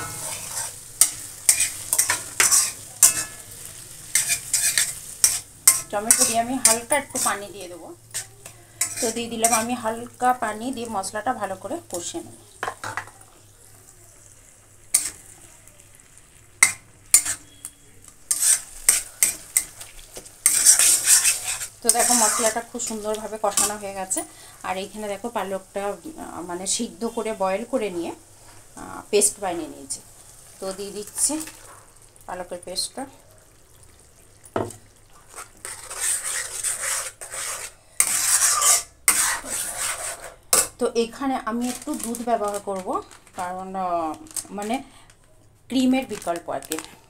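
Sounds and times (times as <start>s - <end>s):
steel spatula scraping an iron pan: 0.0s - 3.5s, 4.1s - 7.4s, 8.1s - 9.8s, 14.9s - 15.2s, 16.6s - 17.6s, 18.3s - 19.8s, 20.4s - 24.2s, 35.3s - 40.7s
masala sizzling in oil: 0.0s - 45.0s.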